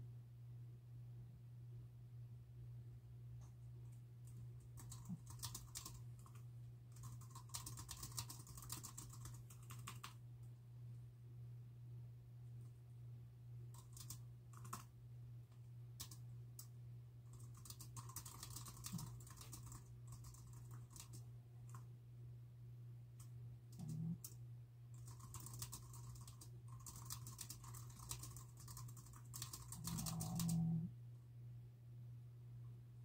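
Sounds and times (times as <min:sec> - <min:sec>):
steady low hum: 0:00.0 - 0:33.0
typing on a keyboard: 0:03.9 - 0:10.2, 0:13.7 - 0:14.9, 0:16.0 - 0:16.7, 0:17.3 - 0:21.8, 0:23.2 - 0:30.7.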